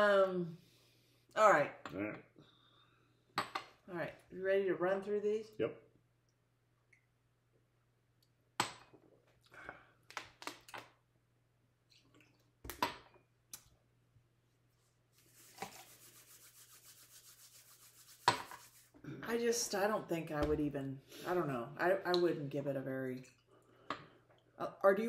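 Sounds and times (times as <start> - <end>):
palms rubbing together: 15.1 - 19.0.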